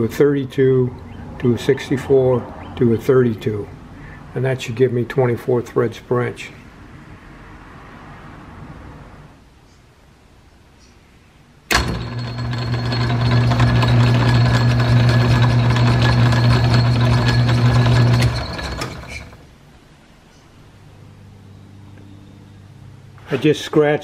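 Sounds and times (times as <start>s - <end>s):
gear train whirring clatter: 11.7s - 19.4s
lathe motor humming: 11.7s - 19.4s.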